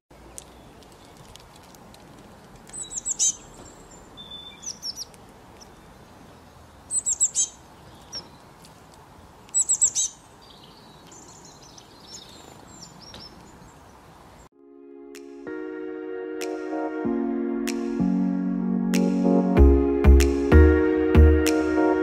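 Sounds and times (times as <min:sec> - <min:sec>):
songbird chirping: 0:00.1 - 0:01.7, 0:02.4 - 0:14.5.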